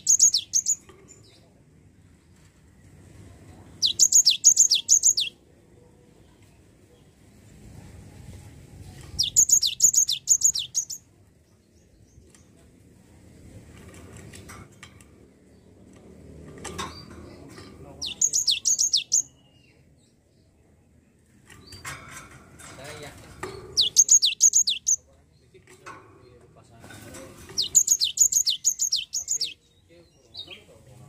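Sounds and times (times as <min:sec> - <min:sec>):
bird singing high-pitched notes: 0:00.0 - 0:00.8, 0:03.8 - 0:05.4, 0:09.2 - 0:11.1, 0:18.0 - 0:19.6, 0:23.8 - 0:25.0, 0:27.6 - 0:30.5.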